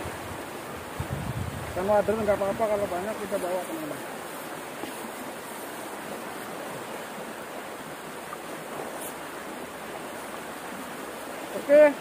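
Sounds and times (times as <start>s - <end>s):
stream rushing over rapids: 0.0s - 12.0s.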